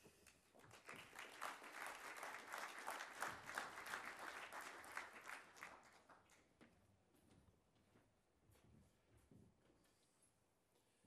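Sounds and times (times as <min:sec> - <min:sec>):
audience applauding: 0:00.6 - 0:06.4.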